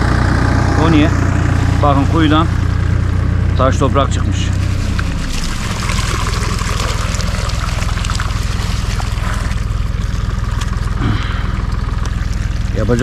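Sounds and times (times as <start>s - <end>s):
engine humming: 0.0s - 13.0s
water pouring in a stream: 4.4s - 13.0s.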